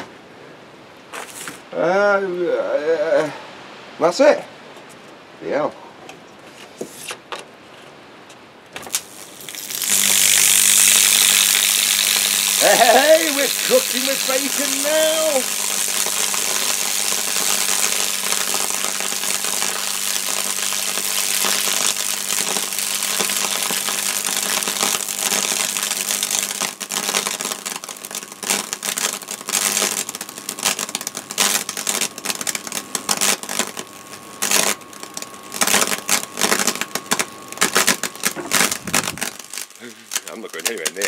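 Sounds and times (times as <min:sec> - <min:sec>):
electrical arcing crackle: 0:08.8 - 0:41.0.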